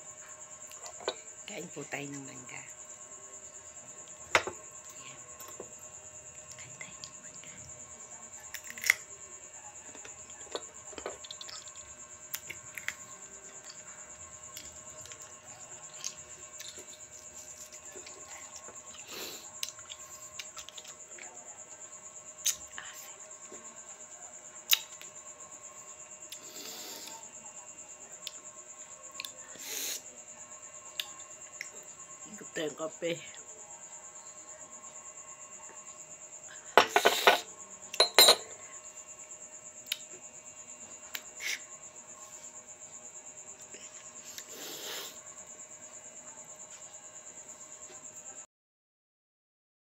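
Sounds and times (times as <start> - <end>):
cricket trilling: 0.0 - 48.5
coffee cup and spoon clinking: 36.8 - 37.4, 38.0 - 38.6.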